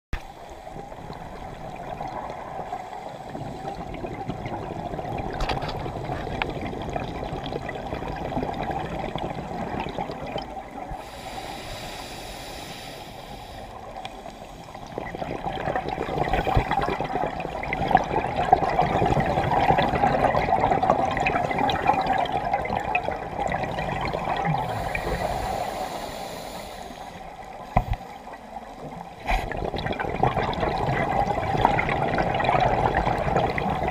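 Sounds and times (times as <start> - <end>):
muffled underwater rush: 0.2 - 33.9
crackling clicks: 5.2 - 6.6.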